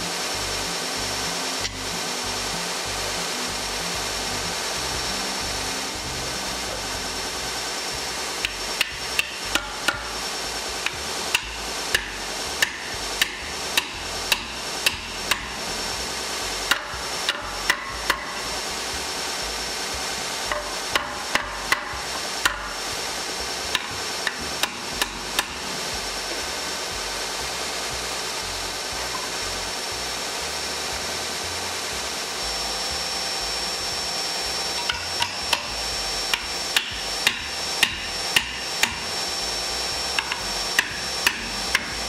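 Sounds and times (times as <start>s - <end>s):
hammer striking wooden spokes: 8.4s - 15.8s, 16.5s - 18.6s, 20.4s - 26.5s, 34.6s - 39.2s, 40.0s - 42.0s.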